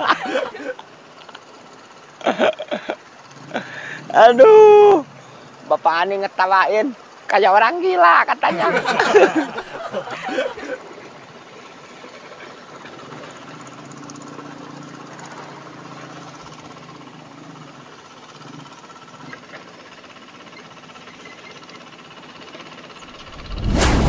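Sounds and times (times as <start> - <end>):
motorcycle engine running: 11.0 - 23.4.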